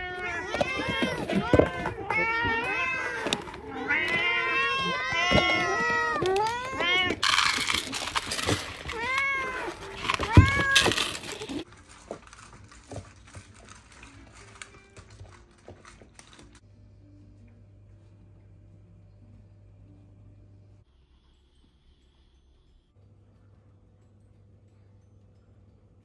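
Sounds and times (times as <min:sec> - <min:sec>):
cats meowing: 0:00.0 - 0:11.6
cats crunching dry kibble: 0:00.2 - 0:16.6
rattling noises: 0:02.7 - 0:16.6.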